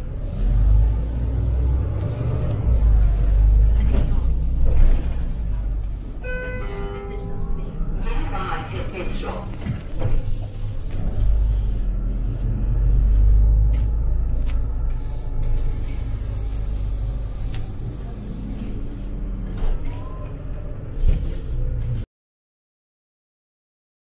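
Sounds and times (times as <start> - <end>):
bus engine rumble: 0.0 - 22.1
compressed air hisses: 9.4 - 13.4, 14.3 - 19.2.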